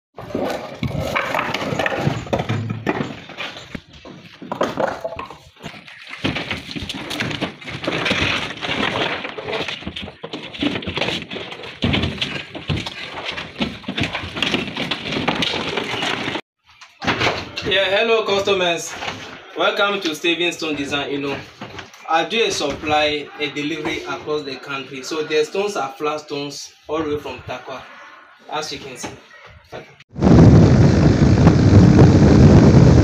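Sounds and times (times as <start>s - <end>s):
stone slabs knocking and scraping: 0.2s - 16.4s.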